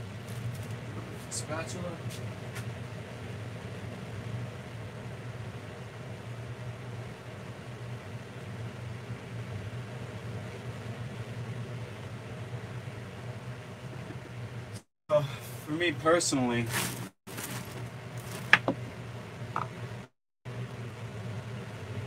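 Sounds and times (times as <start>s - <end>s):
low motor hum: 0.0s - 14.9s, 16.6s - 22.0s.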